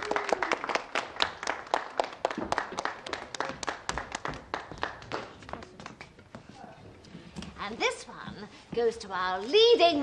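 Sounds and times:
people clapping: 0.0 - 6.3.

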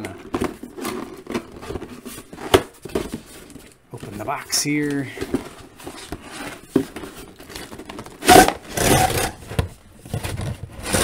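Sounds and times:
light taps and handling noises: 0.0 - 8.2
cardboard scraping and rasping: 5.8 - 11.0.

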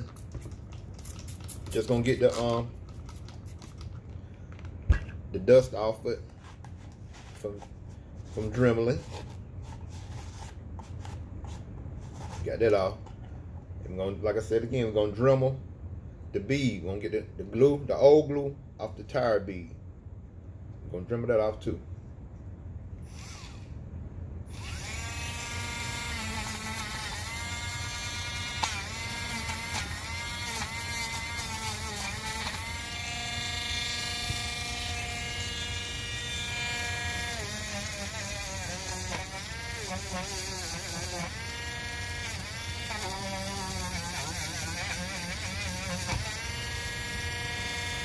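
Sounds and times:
rotary tool grinding rubber: 23.1 - 23.7, 24.5 - 48.0.

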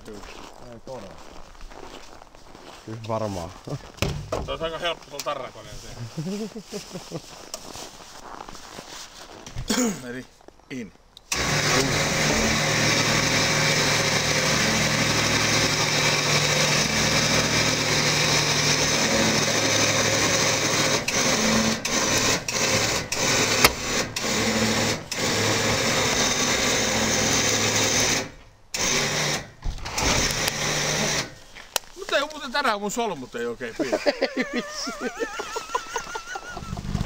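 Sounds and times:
small motor running: 11.3 - 31.3.

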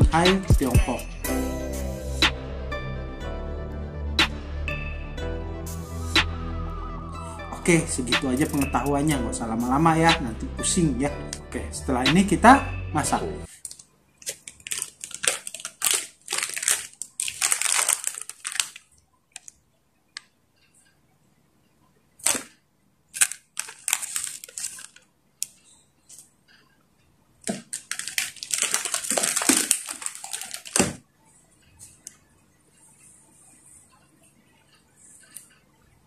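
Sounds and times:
plastic packets crinkling: 13.5 - 19.6, 22.2 - 26.3, 27.4 - 31.1.

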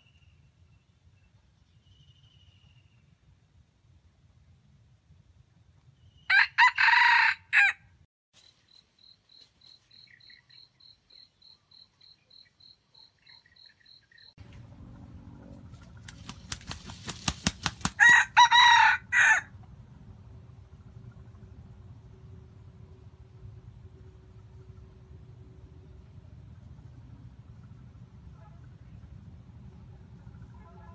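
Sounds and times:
roosters crowing: 6.3 - 7.8, 17.8 - 19.5.

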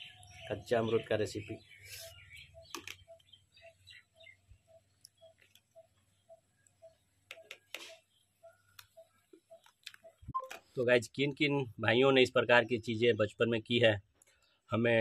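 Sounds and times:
faint repeated bird call: 0.0 - 10.8.

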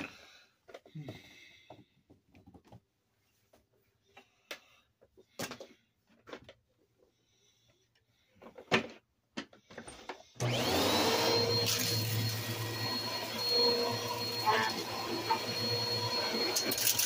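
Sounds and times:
vacuum cleaner motor running: 10.4 - 17.0.

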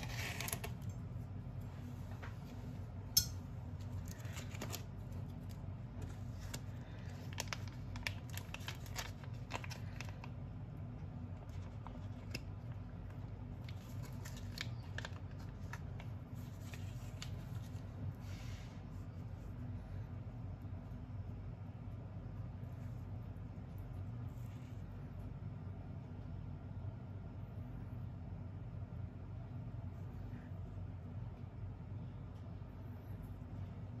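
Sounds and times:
plastic packet crinkling and snipping: 0.0 - 0.9, 3.8 - 10.6, 11.4 - 17.8
low steady hum: 0.0 - 34.0.

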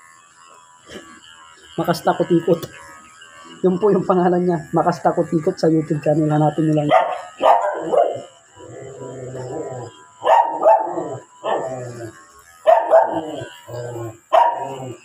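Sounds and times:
dog barking: 6.9 - 8.3, 10.2 - 11.7, 12.7 - 13.4, 14.3 - 14.8.

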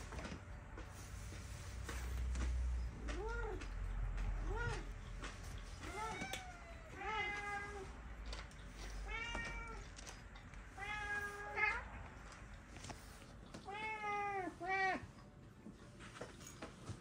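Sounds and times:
cats meowing: 4.4 - 8.0, 8.6 - 12.3, 13.5 - 15.2.

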